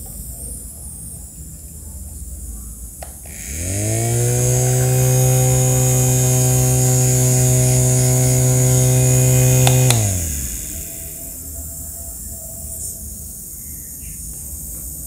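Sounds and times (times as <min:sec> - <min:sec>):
mini fan motor humming: 0:03.2 - 0:11.9
fan switch click: 0:06.6 - 0:10.6.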